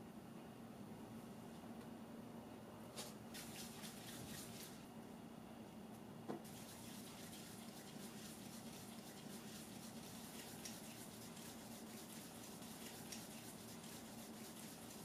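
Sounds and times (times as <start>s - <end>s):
hands rubbing dough on countertop: 3.0s - 4.8s, 6.5s - 15.0s.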